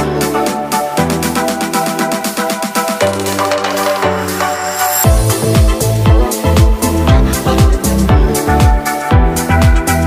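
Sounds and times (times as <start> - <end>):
kick drum beat: 5.0 - 10.0.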